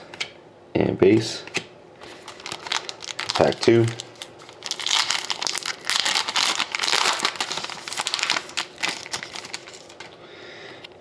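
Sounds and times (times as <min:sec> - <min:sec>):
card pack wrapper crinkling: 0:02.0 - 0:10.2.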